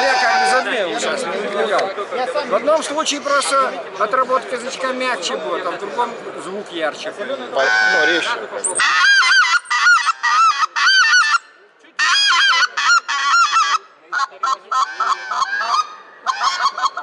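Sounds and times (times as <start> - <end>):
goose call honks: 0.0 - 0.7, 7.6 - 17.0.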